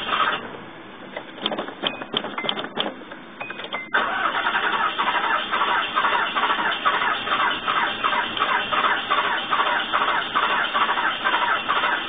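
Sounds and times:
engine cranking on starter: 0:00.0 - 0:00.6, 0:03.7 - 0:12.0
clicks: 0:01.1 - 0:04.0.

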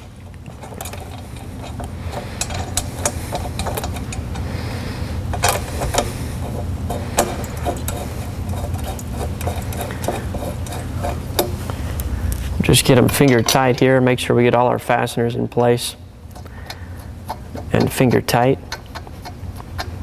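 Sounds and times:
metal bolts clicking and clinking: 0:00.5 - 0:04.5, 0:05.3 - 0:11.6, 0:12.8 - 0:14.2.

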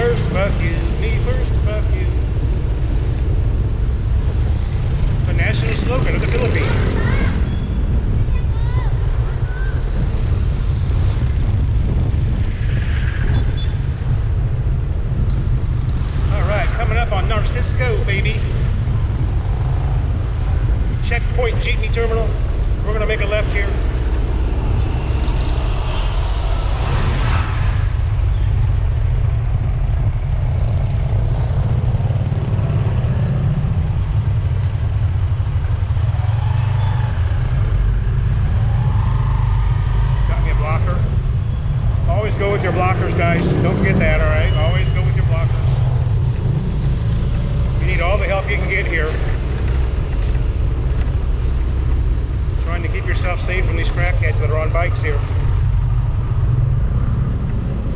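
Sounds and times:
wind buffeting microphone: 0:00.0 - 0:37.4
motorcycle and road noise: 0:00.0 - 0:57.9.

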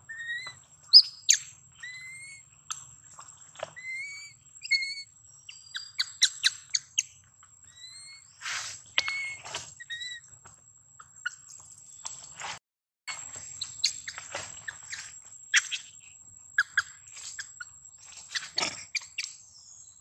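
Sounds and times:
animal chirps: 0:00.0 - 0:02.9, 0:03.7 - 0:10.3, 0:13.1 - 0:20.0.

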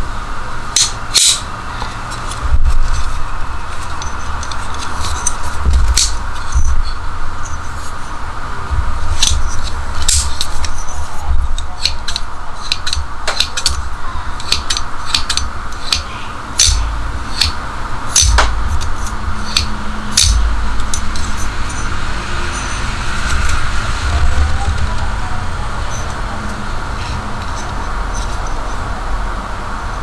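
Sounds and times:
low rumble: 0:02.4 - 0:11.6, 0:16.3 - 0:30.0.

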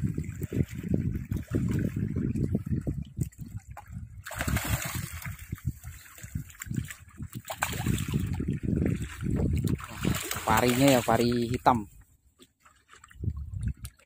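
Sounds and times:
seawater splashing: 0:03.7 - 0:14.0
stingray thrashing in water: 0:04.2 - 0:11.3.

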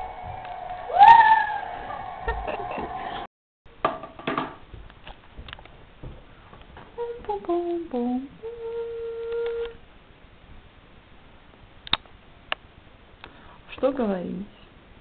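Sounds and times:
woman humming: 0:07.0 - 0:09.8.

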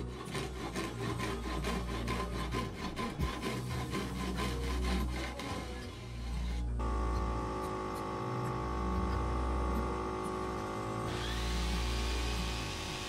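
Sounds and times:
handsaw cutting plywood: 0:00.0 - 0:06.8, 0:11.0 - 0:13.0.

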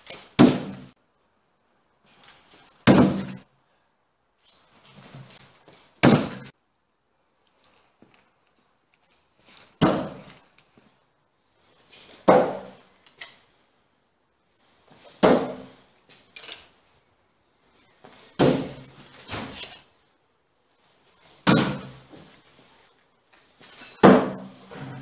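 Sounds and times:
blades hitting wooden target: 0:02.8 - 0:03.4, 0:06.0 - 0:06.5, 0:24.0 - 0:24.5.

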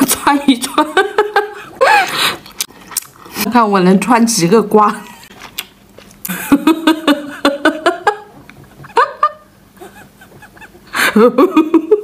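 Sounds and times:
woman laughing: 0:00.4 - 0:02.2, 0:06.3 - 0:12.0.

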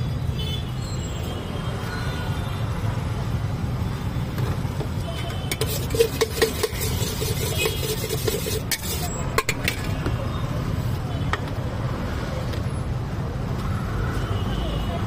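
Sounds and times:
low rumble of road traffic: 0:00.0 - 0:15.0
metal spoon scraping steel pot: 0:05.2 - 0:10.1.

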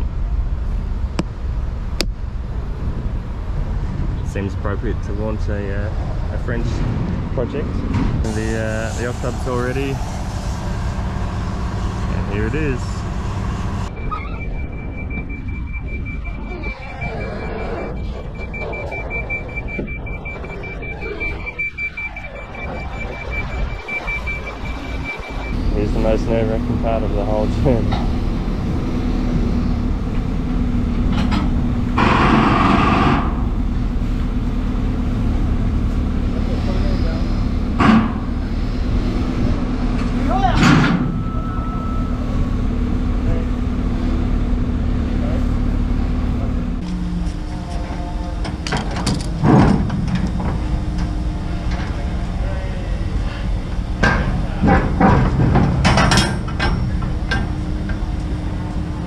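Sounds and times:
diesel lorry engine running: 0:00.0 - 0:59.0
steady low rumble: 0:00.0 - 0:59.0
air brakes hissing: 0:08.2 - 0:12.1
metal clanks of container doors: 0:40.4 - 0:41.8, 0:48.4 - 0:51.2, 0:54.0 - 0:58.0.

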